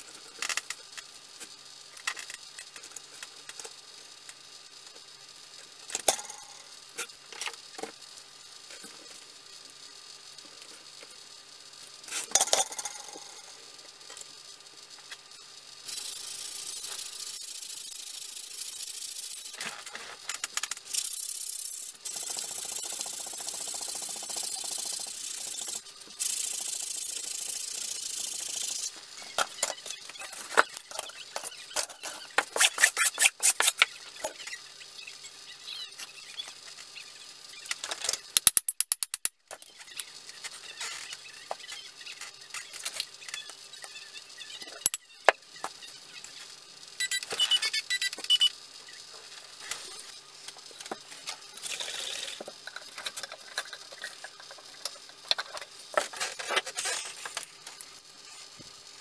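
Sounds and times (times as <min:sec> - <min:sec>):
tools clicking and knocking: 0:37.8 - 0:39.7.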